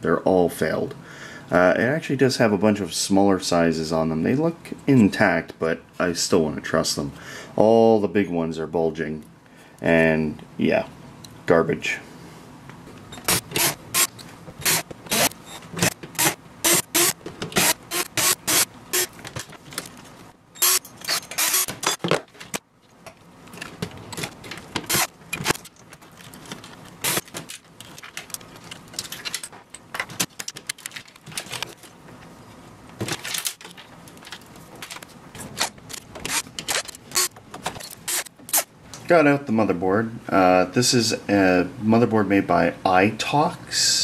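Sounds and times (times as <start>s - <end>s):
metal parts clicking and scraping: 13.1s - 22.6s, 23.4s - 32.3s, 33.0s - 38.7s.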